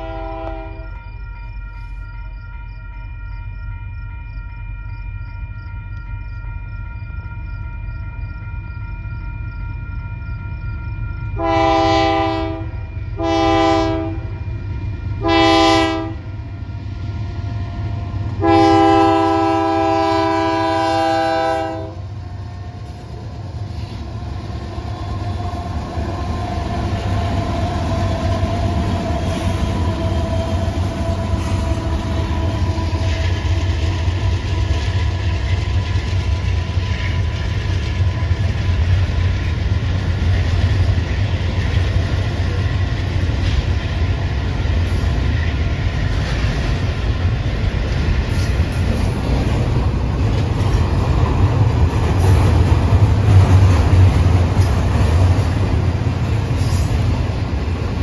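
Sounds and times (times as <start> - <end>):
locomotive air horn blasts: 0.0 - 1.0, 11.4 - 14.4, 15.2 - 16.3, 18.4 - 22.1
freight train rumbling past: 0.0 - 58.0.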